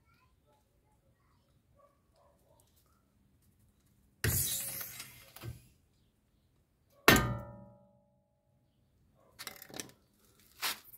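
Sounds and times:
sharp metallic clank ringing: 7.1 - 8.0.

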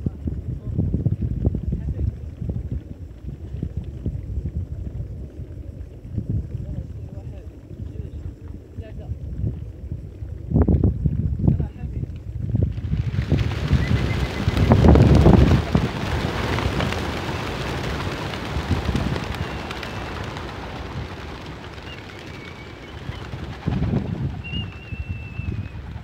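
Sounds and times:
pigeons flapping wings: 12.0 - 26.0.

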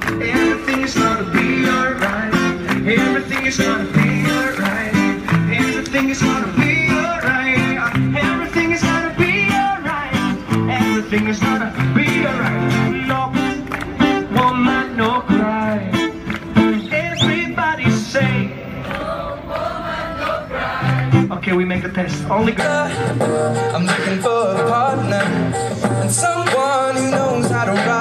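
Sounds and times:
acoustic guitar strumming: 0.0 - 18.5, 21.0 - 28.0.

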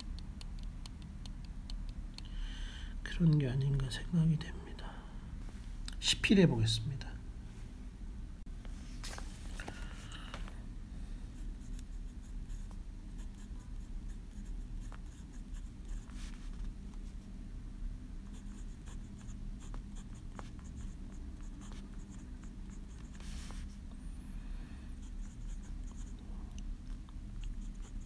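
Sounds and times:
steady low hum: 0.0 - 28.0
pen nib scratching paper: 11.6 - 16.4, 18.3 - 23.6, 25.0 - 26.2, 27.3 - 28.0.

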